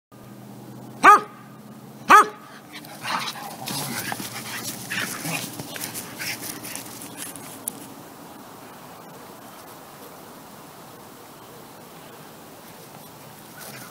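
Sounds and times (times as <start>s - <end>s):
dogs barking: 1.0s - 1.5s, 2.1s - 7.0s
dogs scuffling on grass: 2.5s - 10.2s, 12.6s - 13.9s.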